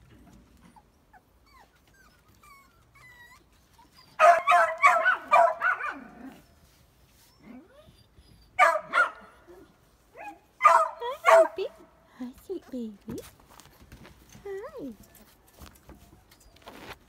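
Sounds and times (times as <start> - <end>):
puppies whimpering: 0.6 - 4.2, 7.2 - 8.6
puppy yips and barks: 1.1 - 6.4, 7.5 - 11.6.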